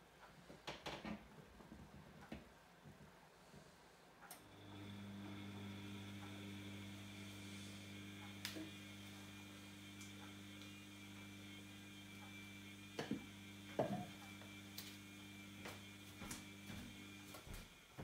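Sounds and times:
washing machine humming: 4.3 - 18.0.

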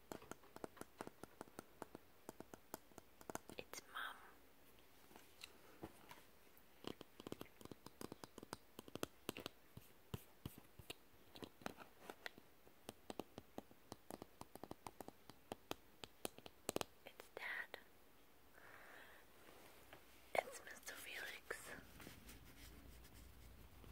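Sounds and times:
fingertips tapping on thin wood: 0.0 - 3.7, 6.8 - 17.0.

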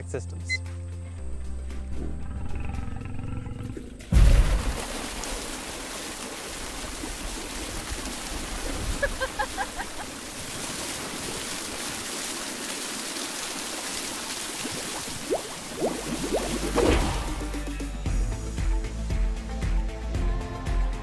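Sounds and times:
water gushing and splashing: 3.7 - 17.8.

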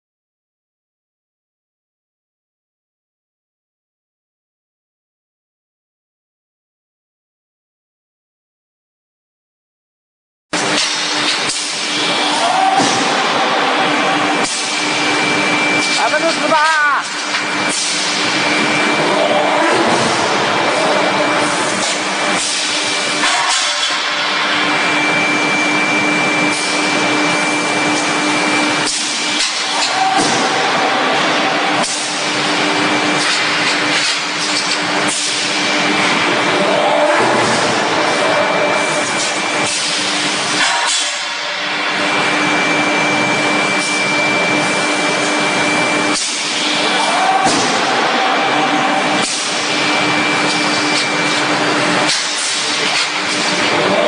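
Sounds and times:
loud steady machine hissing: 10.6 - 36.6, 37.8 - 54.0
thin high whine: 10.6 - 37.0, 37.8 - 54.0
low machine hum: 10.6 - 54.0.

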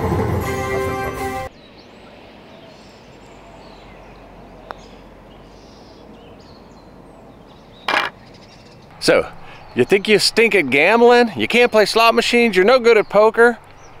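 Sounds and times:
birds chirping: 1.5 - 14.0
putter striking golf ball: 7.9 - 8.2.

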